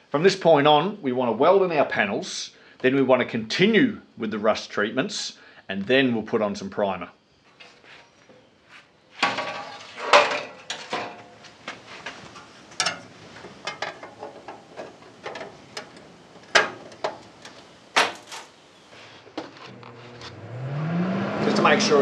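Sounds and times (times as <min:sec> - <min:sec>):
sheet steel clanking and scraping: 0:09.2 - 0:18.6.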